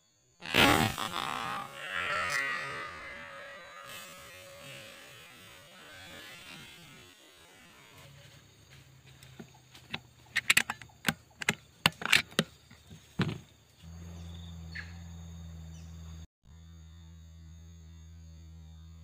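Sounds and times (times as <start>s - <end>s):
rifle handling clicks and knocks: 9.3s - 13.4s.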